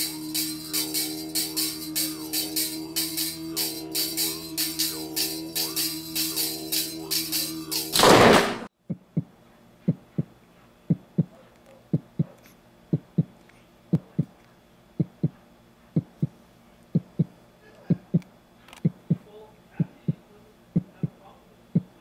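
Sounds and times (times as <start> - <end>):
music: 0.0 - 8.5
heartbeat thumps: 8.8 - 14.4, 15.0 - 15.4, 16.0 - 20.2, 20.8 - 21.2, 21.8 - 22.0.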